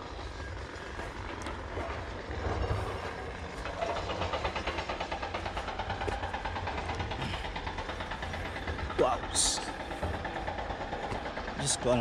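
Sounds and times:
fast even pulsing: 0:03.0 - 0:12.0.

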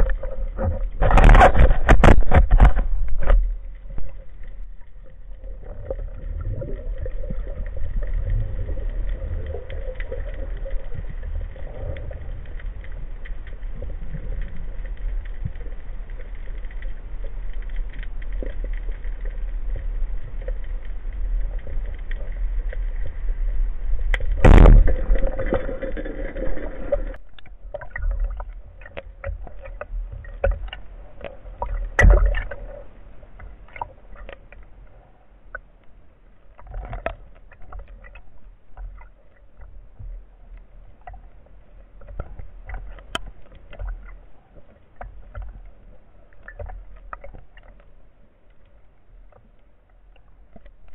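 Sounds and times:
clicks and crackles: 0:00.0 - 0:50.9
faint steady hum: 0:00.0 - 0:50.9
underwater rumble: 0:00.0 - 0:50.9.

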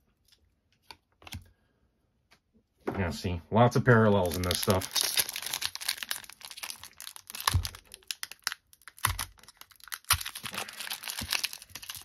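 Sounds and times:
foil wrapper crinkling: 0:04.2 - 0:12.0.

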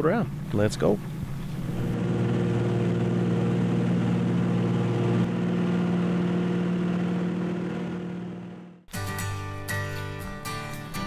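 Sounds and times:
plane piston engine running: 0:01.1 - 0:08.8.

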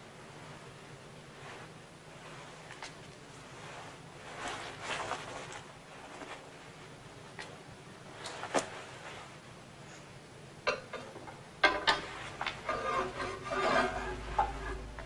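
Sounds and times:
scraping and rubbing: 0:11.8 - 0:15.0.

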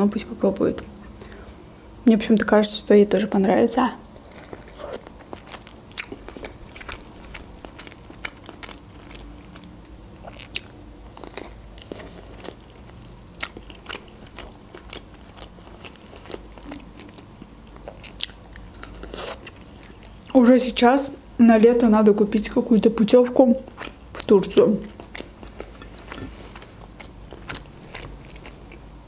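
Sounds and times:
chewing and crunching: 0:04.2 - 0:20.4, 0:23.6 - 0:28.9.

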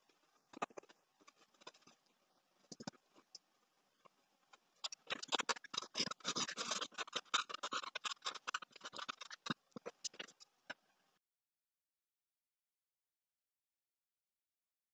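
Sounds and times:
pencil scratching on paper: 0:04.8 - 0:10.4.

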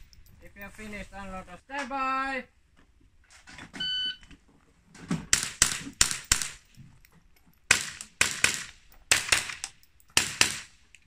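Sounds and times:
rifle shots: 0:05.3 - 0:06.7, 0:07.7 - 0:10.8.

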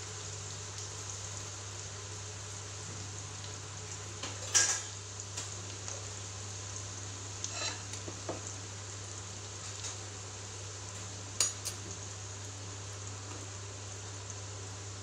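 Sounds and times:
onions sizzling in a pan: 0:00.0 - 0:15.0
wooden spatula scraping a pan: 0:07.4 - 0:08.3.

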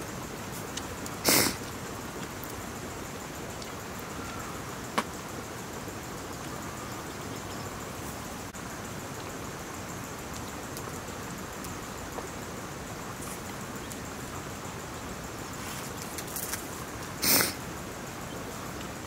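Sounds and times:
background hiss: 0:00.0 - 0:19.0.

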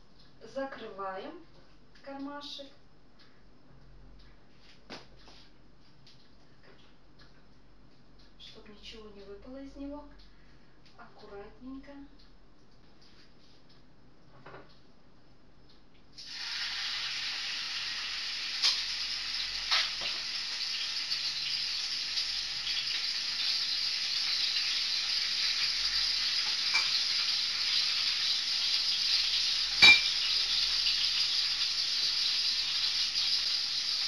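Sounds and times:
hot oil sizzling in pan: 0:16.2 - 0:34.0.

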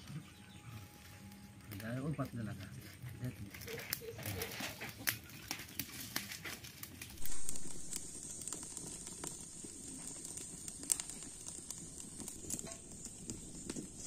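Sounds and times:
fire crackling and popping: 0:00.0 - 0:14.0
sudden burst of noise: 0:07.2 - 0:10.1.

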